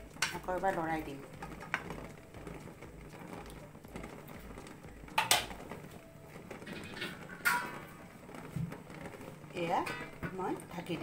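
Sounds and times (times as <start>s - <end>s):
utensil knocking pan: 0.0s - 2.2s, 4.7s - 5.7s, 6.6s - 8.0s, 9.5s - 11.0s.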